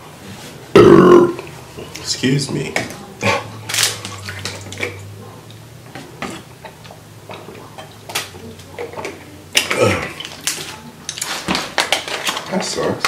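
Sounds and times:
person gulping a drink: 0:00.7 - 0:02.0.

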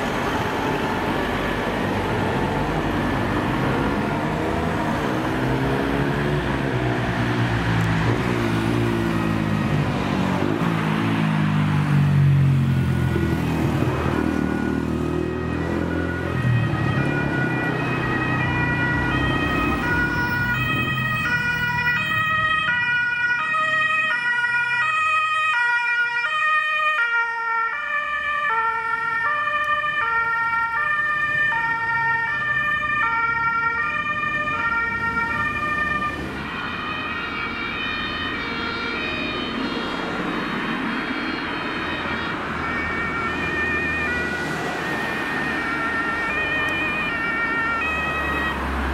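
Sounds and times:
road traffic: 0:00.0 - 0:48.9
two-tone ambulance siren: 0:00.0 - 0:48.9.

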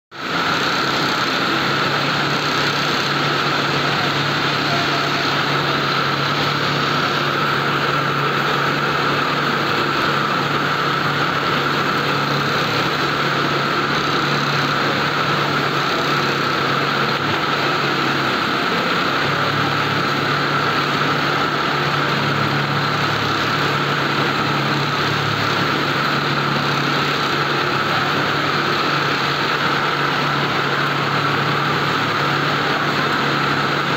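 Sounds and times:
sewing machines humming: 0:00.2 - 0:33.9.

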